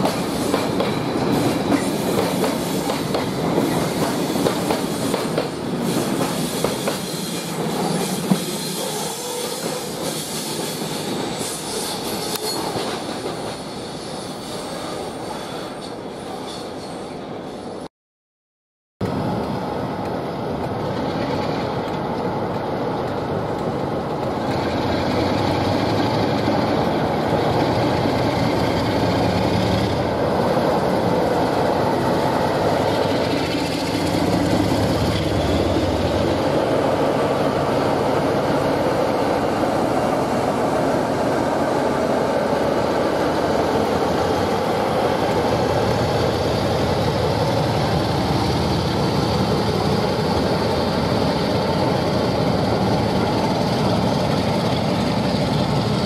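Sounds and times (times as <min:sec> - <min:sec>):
diesel locomotive engine: 0:00.0 - 0:17.9, 0:19.0 - 0:56.0
train rumbling past on rails: 0:00.0 - 0:17.9, 0:19.0 - 0:56.0.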